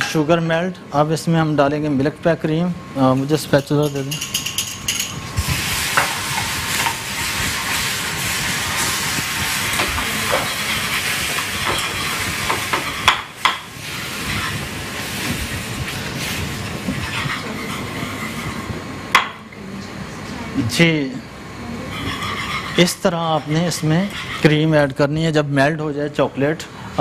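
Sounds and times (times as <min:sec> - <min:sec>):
hot sugar hissing and sputtering: 0:05.3 - 0:18.8
wire whisk scraping pan: 0:06.0 - 0:14.7, 0:16.2 - 0:18.7, 0:21.9 - 0:24.8.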